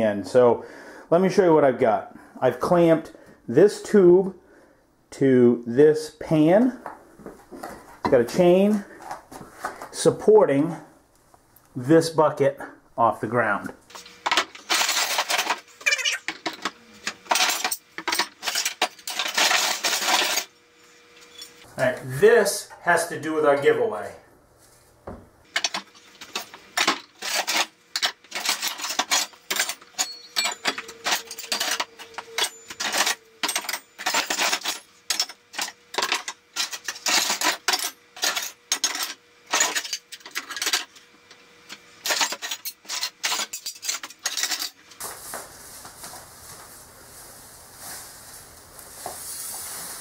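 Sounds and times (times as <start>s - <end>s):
scrap metal clanking into tote: 16.4s - 20.5s.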